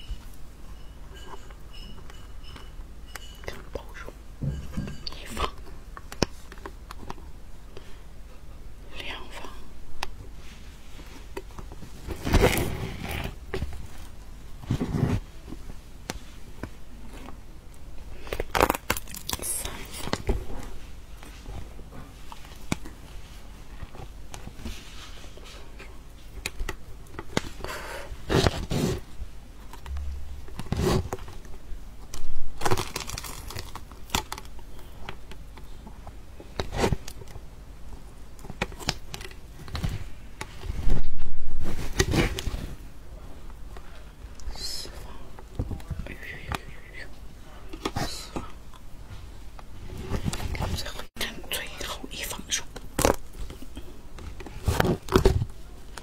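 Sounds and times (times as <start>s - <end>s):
fruit crinkling and tearing: 18.1s - 21.4s, 29.6s - 37.4s.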